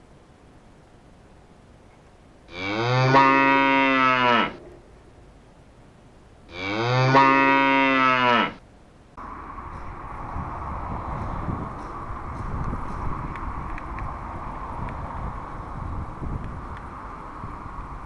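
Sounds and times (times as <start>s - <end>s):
cow mooing: 2.5s - 4.6s, 6.5s - 8.6s.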